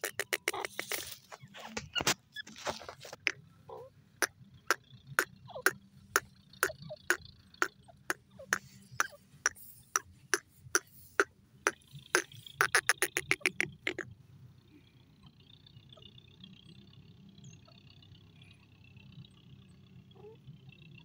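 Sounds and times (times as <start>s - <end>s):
bird clicking calls: 0.0s - 14.1s.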